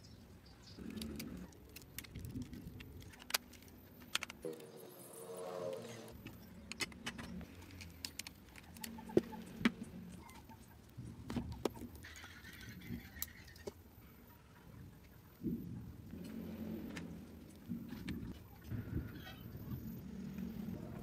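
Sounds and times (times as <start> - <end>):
small clicks and taps of parts: 0.9 - 4.5.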